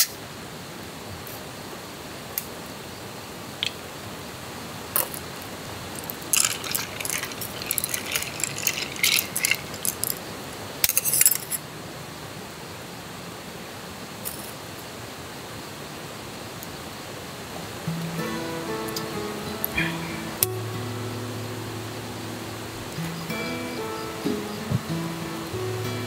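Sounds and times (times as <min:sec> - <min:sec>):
steady background hiss: 0:00.0 - 0:26.0
metal objects clinking and rattling: 0:06.0 - 0:10.2, 0:10.9 - 0:11.6.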